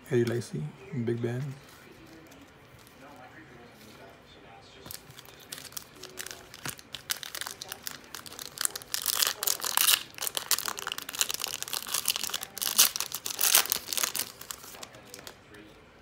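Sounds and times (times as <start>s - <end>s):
foil wrapper crinkling: 4.8s - 15.4s.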